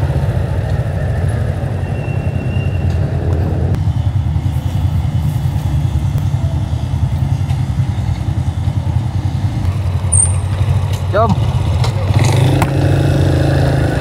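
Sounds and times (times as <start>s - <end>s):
scooter engine idling: 3.8s - 12.2s.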